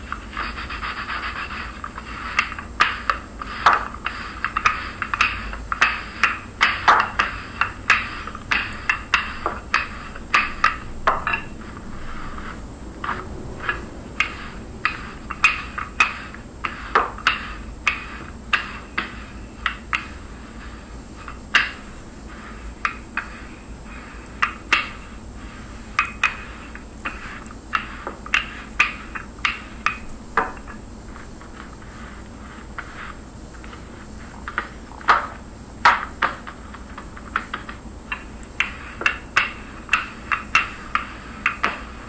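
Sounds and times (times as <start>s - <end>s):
rolling pin knocking on table: 2.4s - 11.5s, 13.7s - 20.1s, 34.5s - 36.6s.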